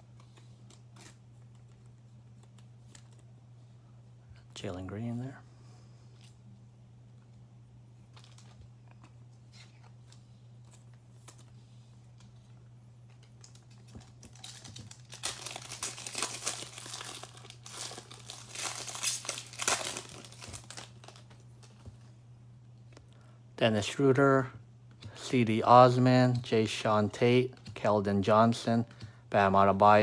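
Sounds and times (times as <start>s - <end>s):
steady low hum: 0.0s - 30.0s
foil wrapper tearing and crinkling: 13.4s - 21.8s.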